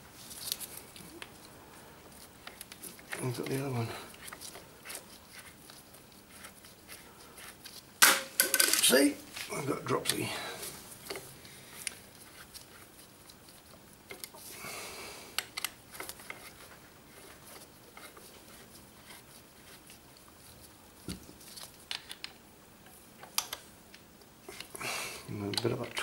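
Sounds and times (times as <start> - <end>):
small metal clicks and scratching: 11.0 - 14.4, 15.4 - 20.3.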